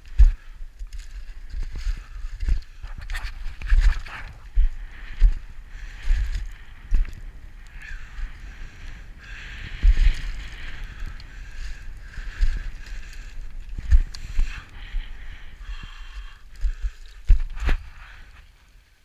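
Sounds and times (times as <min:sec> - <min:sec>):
boots crunching on loose scree: 0:00.0 - 0:07.3, 0:15.7 - 0:18.3.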